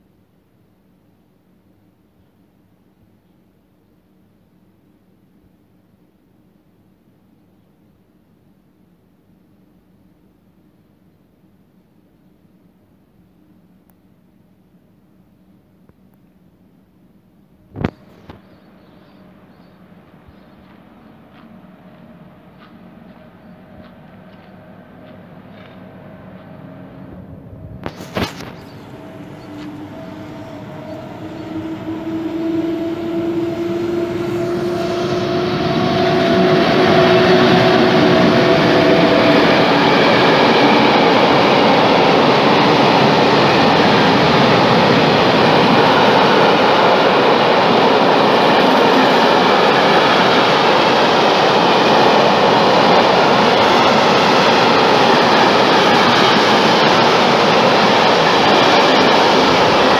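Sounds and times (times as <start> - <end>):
electric locomotive whine: 17.6 - 59.9
freight train wheels rolling: 19.9 - 27.2, 27.8 - 59.9.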